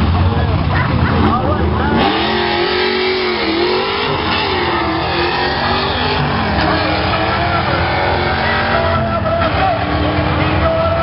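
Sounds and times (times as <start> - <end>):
race cars accelerating hard: 0.0 - 11.0.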